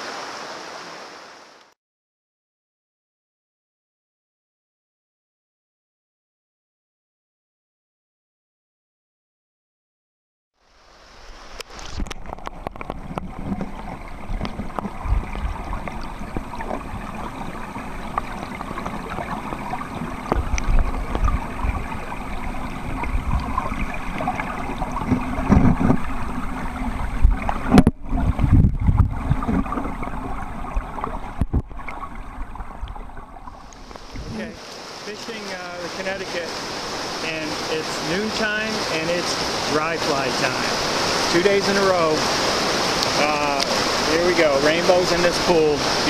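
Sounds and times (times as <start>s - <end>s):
muffled underwater rushing water: 0.0s - 1.7s, 10.6s - 46.0s
low underwater knocks and thumps: 11.7s - 34.5s.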